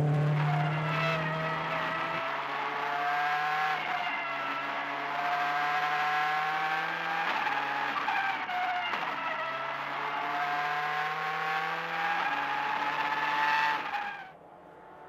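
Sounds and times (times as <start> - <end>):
rally car engine accelerating: 0.0 - 15.0.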